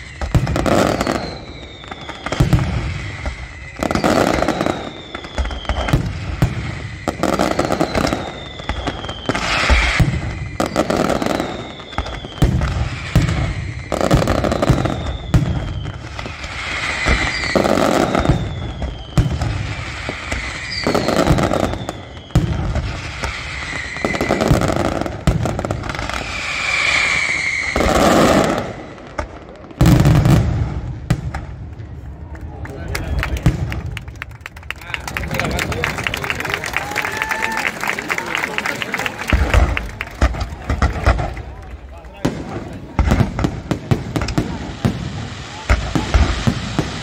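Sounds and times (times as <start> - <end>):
falling firework whistles: 0.0 - 30.9
firework crackle: 0.0 - 47.0
fireworks bursting: 0.0 - 47.0.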